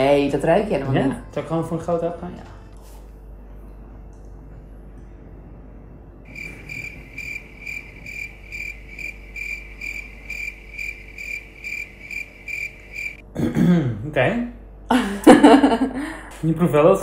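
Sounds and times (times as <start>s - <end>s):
cricket chirp sound effect: 6.3s - 13.2s.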